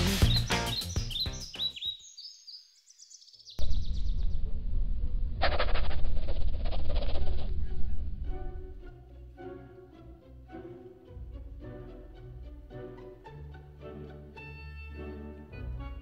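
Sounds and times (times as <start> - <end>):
cartoon music: 0.0 - 1.8
low steady hum: 3.6 - 8.9.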